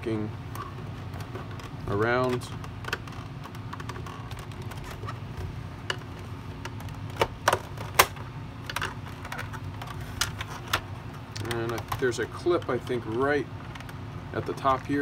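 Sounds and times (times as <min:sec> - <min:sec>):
plastic clips snapping: 0:06.6 - 0:12.0.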